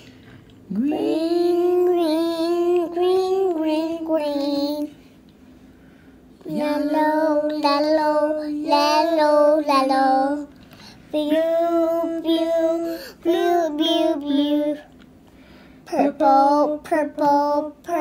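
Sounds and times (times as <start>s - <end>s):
child singing: 0.7s - 5.0s, 6.4s - 10.5s, 11.1s - 14.9s, 15.9s - 18.0s.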